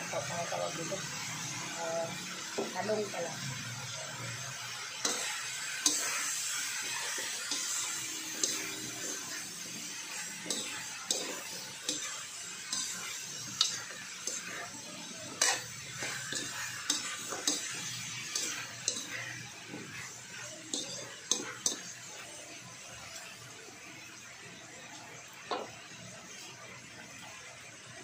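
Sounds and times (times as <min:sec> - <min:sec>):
steady sizzle: 0:00.0 - 0:28.0
spatula scraping and clinking on wok: 0:05.0 - 0:22.0.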